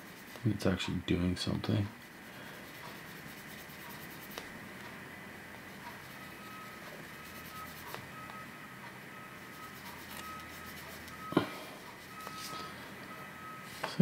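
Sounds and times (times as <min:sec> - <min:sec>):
sandpaper scratching: 0:02.0 - 0:04.5, 0:05.7 - 0:08.1, 0:09.4 - 0:11.2.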